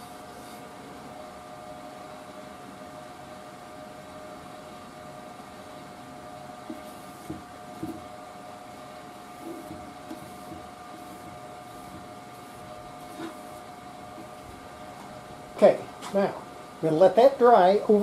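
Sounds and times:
mechanical hum: 0.0 - 18.0
felt pad rubbing wood: 6.7 - 8.0, 9.4 - 14.4.

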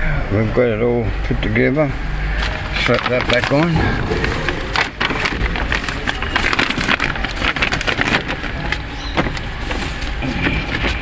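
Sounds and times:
plastic sheet crinkling: 2.4 - 11.0.

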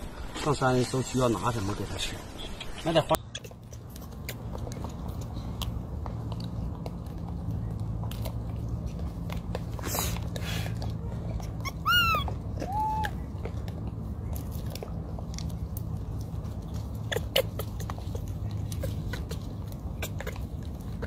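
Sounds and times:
monkeys chewing corn: 0.0 - 21.0
steady low rumble: 0.0 - 21.0
macaque calls: 2.5 - 4.6, 11.4 - 13.2, 16.8 - 21.0.

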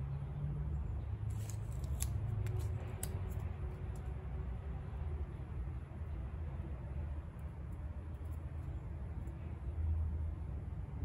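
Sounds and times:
wire cutters snipping: 1.3 - 3.5.

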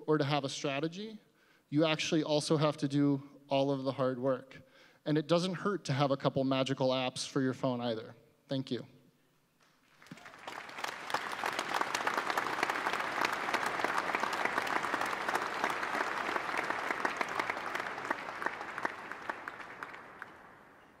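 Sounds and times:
audience applauding: 9.8 - 21.0.

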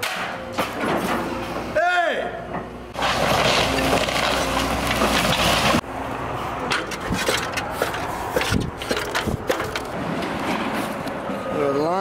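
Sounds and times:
excavator engine: 2.7 - 11.5
scattered cracks and knocks: 3.0 - 5.8, 6.7 - 10.0
walls breaking: 3.0 - 5.8.

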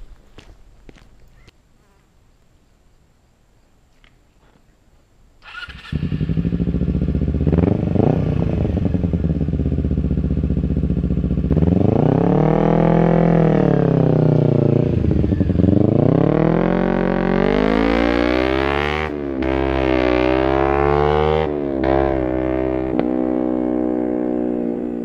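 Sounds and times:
motorcycle engine revving: 5.4 - 25.0.

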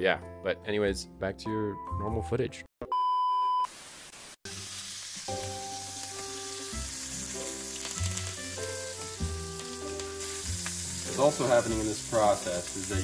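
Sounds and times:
steak sizzling in a frying pan: 3.7 - 13.0
music with slow held notes: 5.2 - 13.0.

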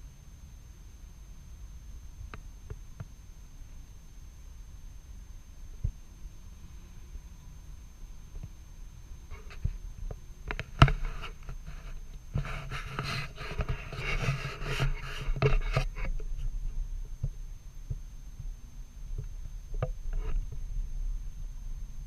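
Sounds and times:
faint ticks: 2.2 - 3.2, 9.2 - 20.7
scraping and rubbing on microphone: 9.2 - 20.8.

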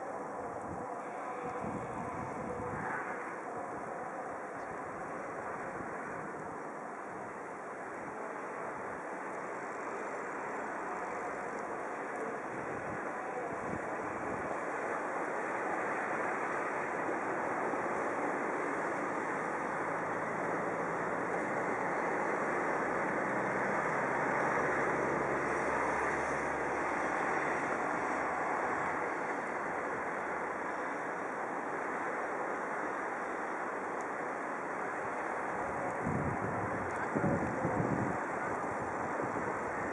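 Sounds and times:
car tyres on snowy road: 0.0 - 39.9
car engines passing: 14.4 - 39.9.

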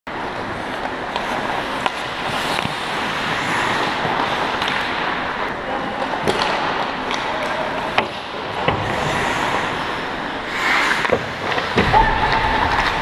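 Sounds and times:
arena noise: 0.2 - 13.0
hockey sticks and puck clacking: 0.2 - 13.0
skates hissing on ice: 0.4 - 5.6, 8.1 - 11.8.

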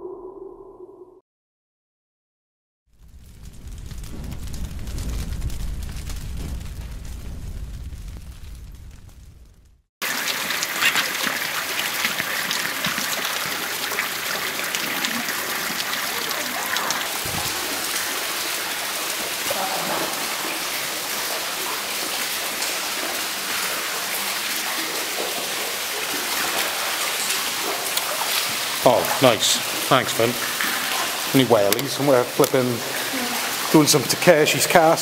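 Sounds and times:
footsteps splashing in water: 10.0 - 18.2, 26.1 - 28.9
water rushing: 10.0 - 35.0.

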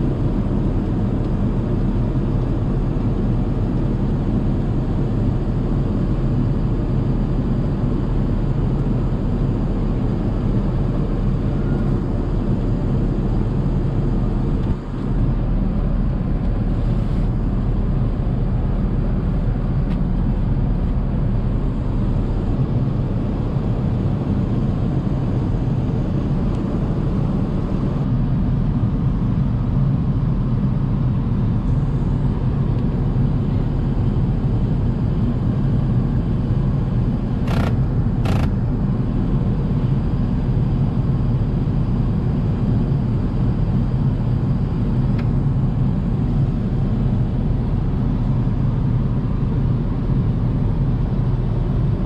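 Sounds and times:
airplane cabin rumble: 0.0 - 52.0
short clicks: 37.5 - 38.6.

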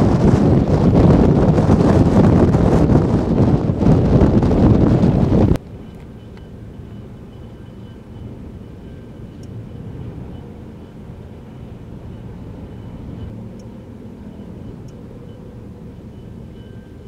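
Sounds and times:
gusty wind buffeting microphone: 0.0 - 17.0
passing road traffic: 5.6 - 17.0.

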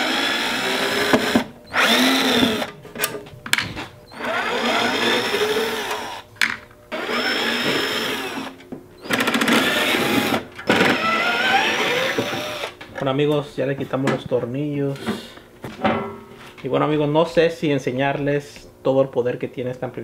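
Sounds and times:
cordless drill motor whine: 0.0 - 2.8, 4.1 - 6.3, 6.9 - 12.8.

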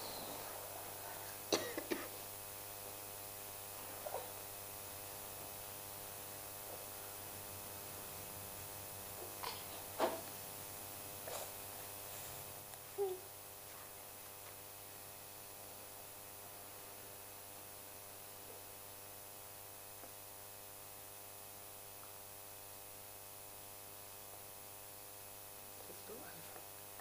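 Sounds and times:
background hiss: 0.0 - 27.0
electrical mains hum: 0.0 - 27.0.

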